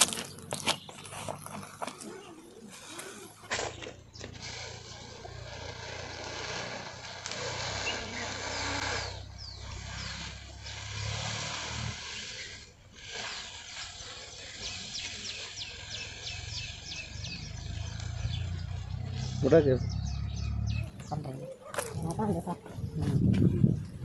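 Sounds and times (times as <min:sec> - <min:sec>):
small birds chirping: 0:00.0 - 0:24.0
hot iron hissing and sizzling: 0:02.9 - 0:19.7.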